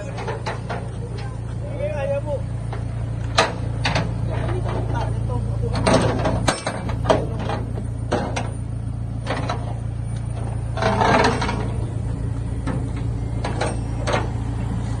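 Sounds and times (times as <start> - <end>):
metal tie-down gear clanking: 0.0 - 1.4, 2.7 - 8.6, 9.2 - 14.7
vehicle engine idling: 0.0 - 15.0.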